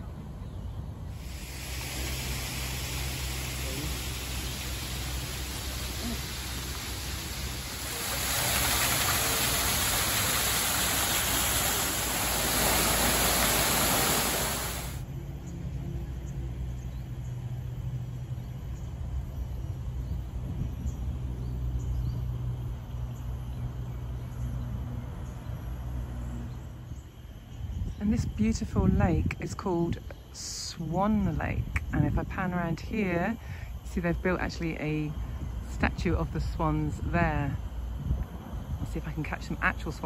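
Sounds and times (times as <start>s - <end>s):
loud rushing hiss: 1.1s - 15.0s.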